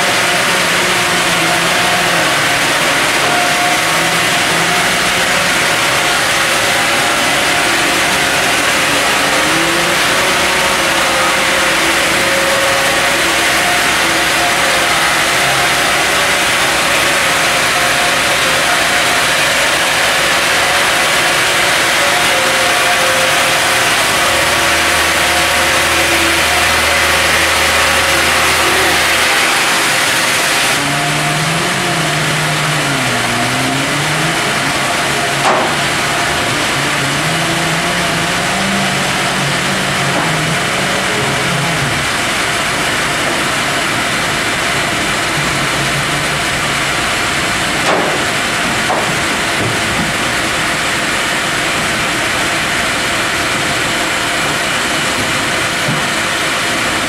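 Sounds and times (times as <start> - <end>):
band saw cutting log: 0.0 - 57.0
motor whine: 0.0 - 57.0
sharp knocks: 35.4 - 35.9, 47.8 - 50.1.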